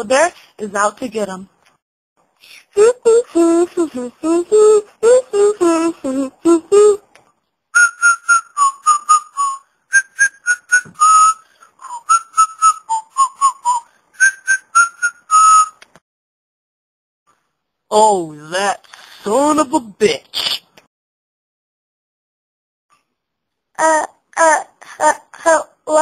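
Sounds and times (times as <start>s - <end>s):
person humming: 2.8s - 7.0s
person whistling a tune: 7.8s - 15.9s.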